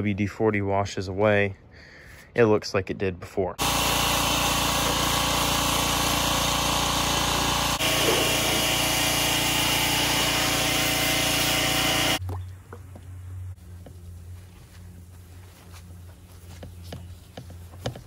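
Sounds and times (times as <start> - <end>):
pressure washer spraying: 3.6 - 12.2.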